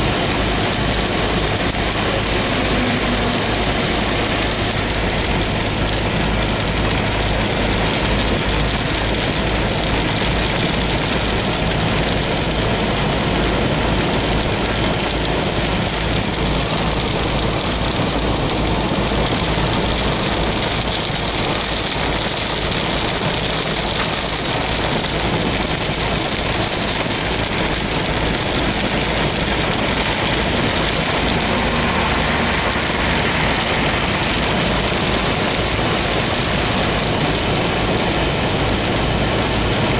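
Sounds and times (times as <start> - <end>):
car engine running: 0.0 - 39.9
rain on car windscreen: 0.0 - 39.9
tyres on wet road: 0.0 - 39.9.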